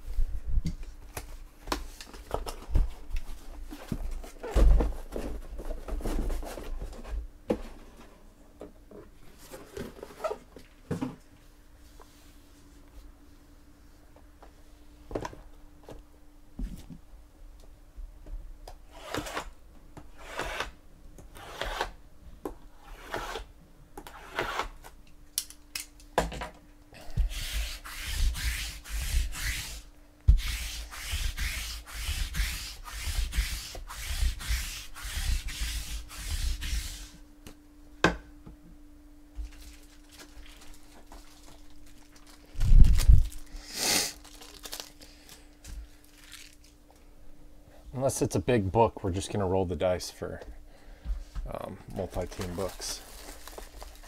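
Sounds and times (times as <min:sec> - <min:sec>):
lint roller rasping on cloth: 0:30.4 - 0:37.1.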